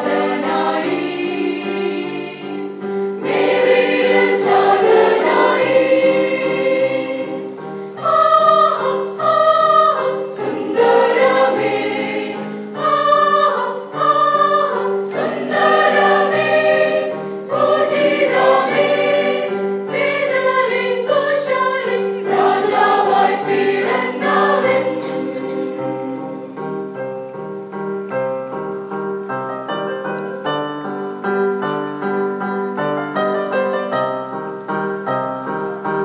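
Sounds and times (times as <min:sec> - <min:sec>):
choir singing a carol: 0:00.0 - 0:27.2.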